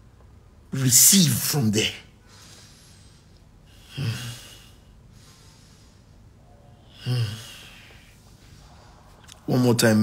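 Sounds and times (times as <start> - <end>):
man exhaling: 3.7 - 6.1, 6.9 - 8.1.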